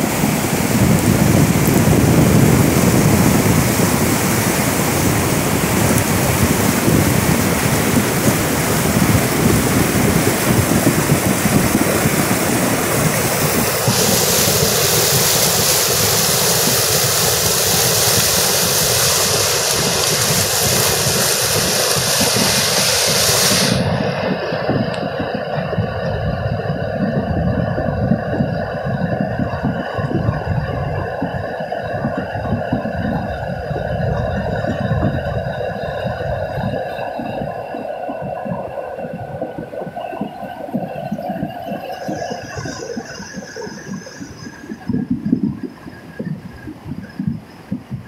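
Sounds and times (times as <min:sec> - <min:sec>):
river rushing torrent: 0:00.0 - 0:25.7
wind buffeting microphone: 0:00.0 - 0:48.0.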